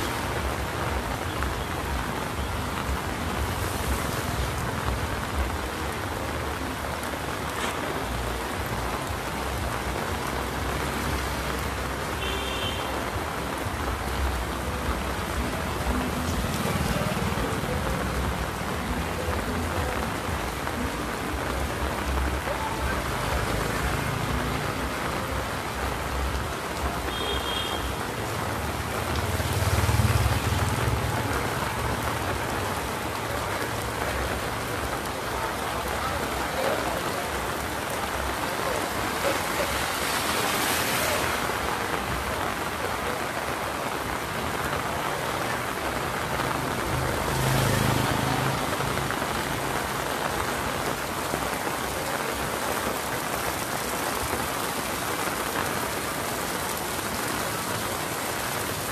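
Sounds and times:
heavy rain on pavement: 0:00.0 - 0:58.9.

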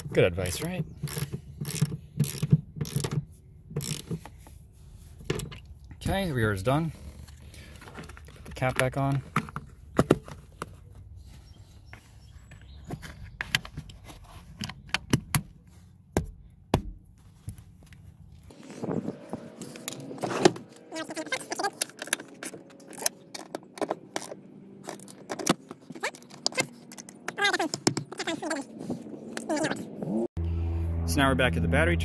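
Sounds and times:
tools and small parts clinking: 0:20.8 - 0:28.3.

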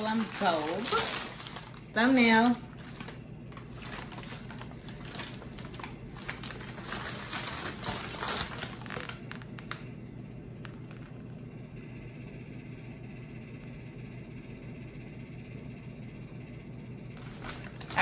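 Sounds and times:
paper bags rustling: 0:00.0 - 0:09.8, 0:17.2 - 0:18.0
refrigerator hum: 0:00.0 - 0:18.0.

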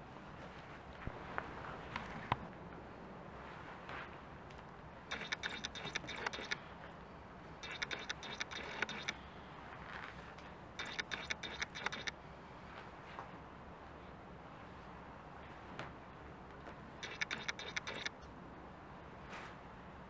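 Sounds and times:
toy car mechanism whirring and clicking: 0:05.1 - 0:06.7, 0:07.6 - 0:09.3, 0:10.8 - 0:12.2, 0:17.0 - 0:18.2.

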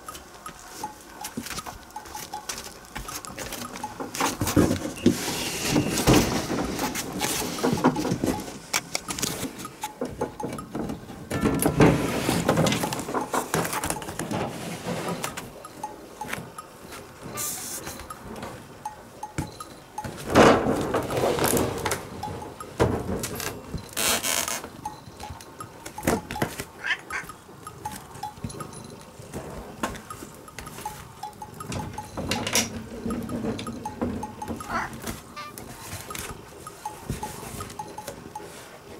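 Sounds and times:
rustling: 0:00.2 - 0:10.4
cat meowing: 0:26.8 - 0:27.3, 0:34.7 - 0:35.6.

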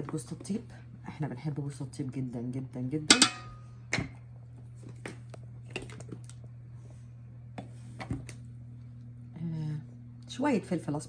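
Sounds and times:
steady low hum: 0:00.0 - 0:11.0
spoon tapping metal pan: 0:03.1 - 0:03.6.

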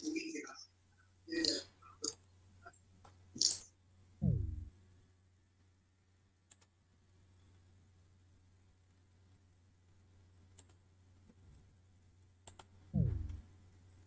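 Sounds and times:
mouse and keyboard clicks: 0:06.5 - 0:06.7, 0:10.5 - 0:10.8, 0:12.4 - 0:12.7.

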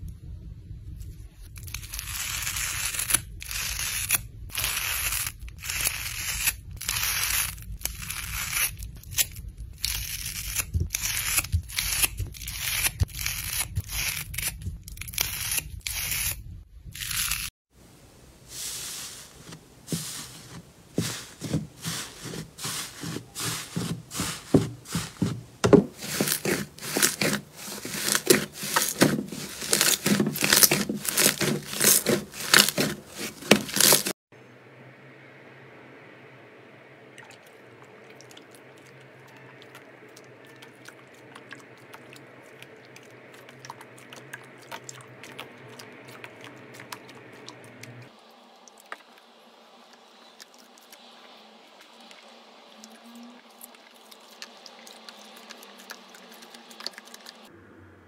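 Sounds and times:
scissors cutting foam sponge: 0:01.6 - 0:16.4, 0:19.9 - 0:34.1.

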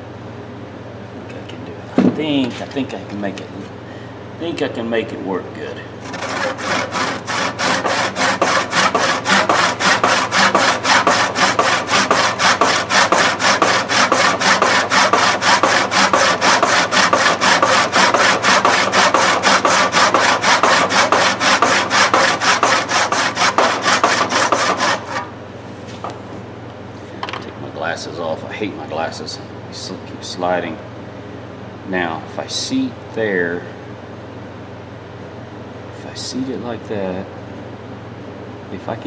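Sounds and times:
handsaw cutting wood: 0:06.0 - 0:25.3.

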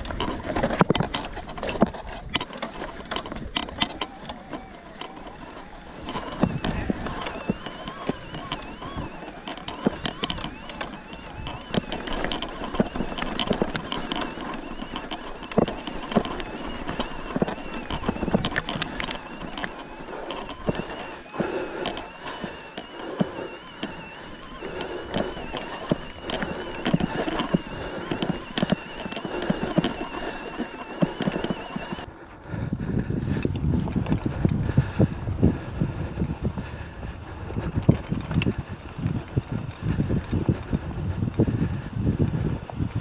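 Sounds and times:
bike rattling over stones: 0:00.0 - 0:43.0
thin steady whine: 0:00.0 - 0:43.0
low rumbling noise: 0:32.0 - 0:43.0.

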